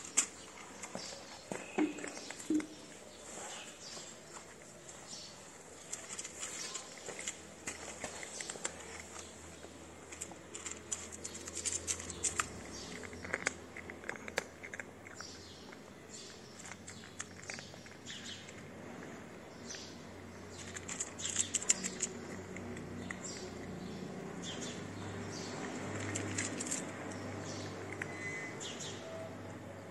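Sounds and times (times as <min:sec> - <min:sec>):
cat crunching dry kibble: 0:05.7 - 0:28.1.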